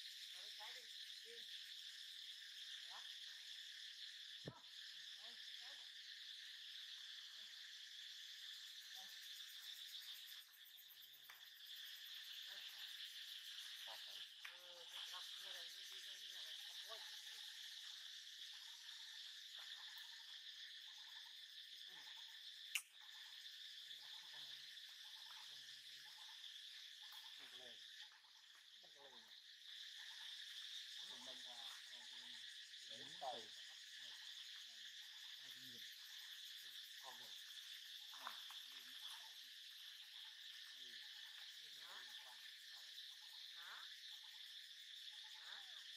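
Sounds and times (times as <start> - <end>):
forest insects droning: 0.0 - 45.9
sharp click: 22.7 - 22.9.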